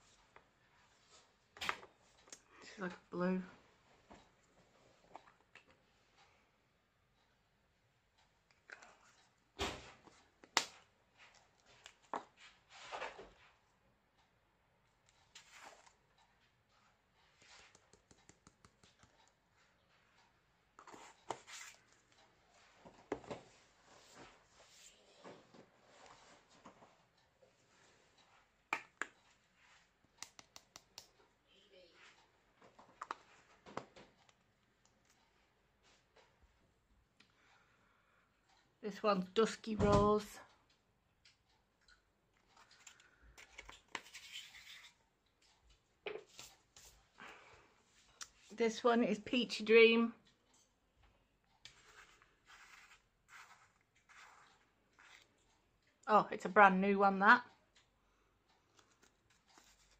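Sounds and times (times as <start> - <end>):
plastic pots scraping and clicking: 42.5 - 45.0.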